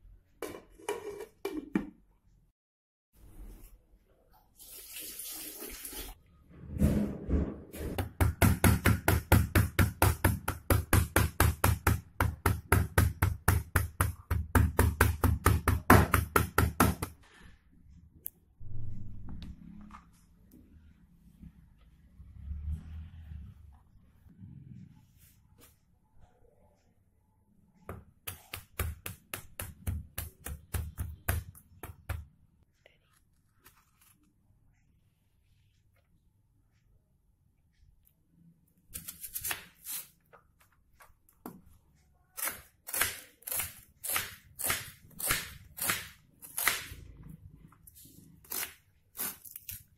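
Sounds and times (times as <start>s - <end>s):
knife chopping on plastic board: 8.0s - 17.2s, 27.9s - 32.3s
faint handling sounds: 32.6s - 36.6s.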